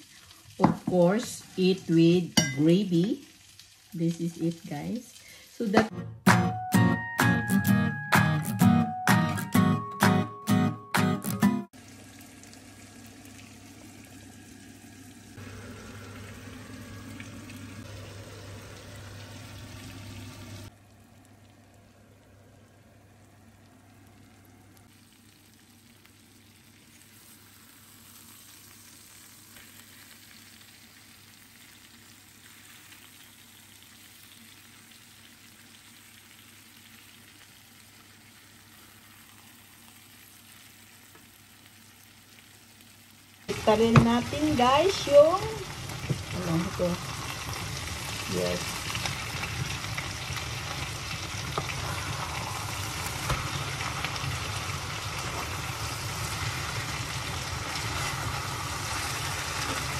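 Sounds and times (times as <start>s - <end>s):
patties sizzling in frying pan: 0.0s - 5.9s, 11.8s - 59.9s
steady hum: 13.6s - 24.9s.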